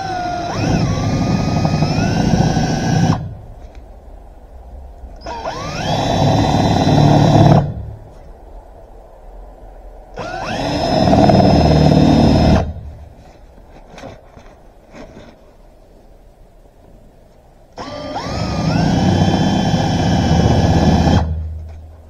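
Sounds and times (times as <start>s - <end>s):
cordless drill boring: 0.0s - 3.4s, 5.2s - 7.8s, 10.2s - 12.8s, 17.8s - 21.4s.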